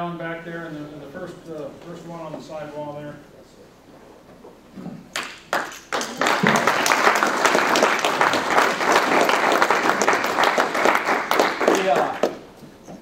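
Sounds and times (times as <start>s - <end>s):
audience applauding: 5.1s - 12.4s.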